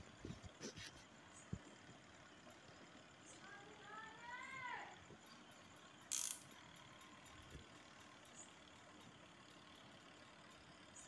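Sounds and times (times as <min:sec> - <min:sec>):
plastic timer clicking rattle: 0:06.0 - 0:10.7.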